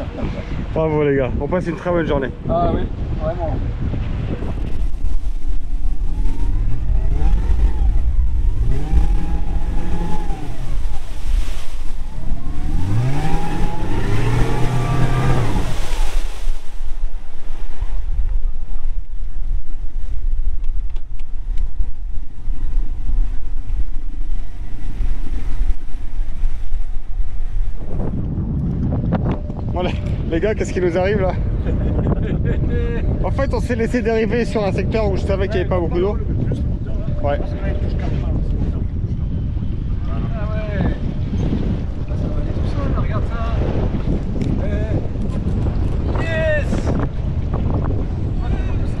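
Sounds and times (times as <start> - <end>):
low rumble: 2.3 - 49.0
outboard motor revving: 4.6 - 18.1.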